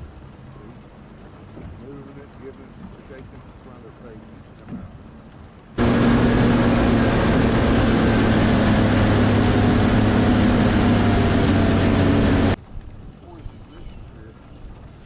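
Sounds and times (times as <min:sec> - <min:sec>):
rushing wind and water: 0:00.0 - 0:15.0
outboard motor running: 0:05.8 - 0:12.6.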